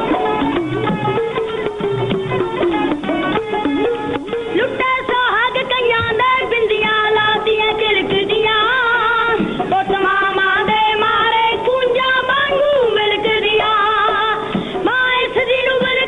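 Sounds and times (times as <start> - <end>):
wavering melody line: 0.0 - 5.1
steady held tone: 0.0 - 8.2.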